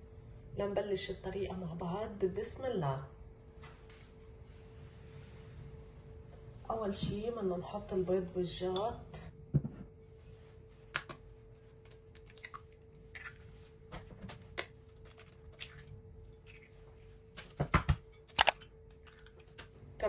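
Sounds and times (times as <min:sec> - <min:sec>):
glass bowl knocking on counter: 0:09.5 - 0:09.9
eggshells cracking: 0:11.8 - 0:13.4.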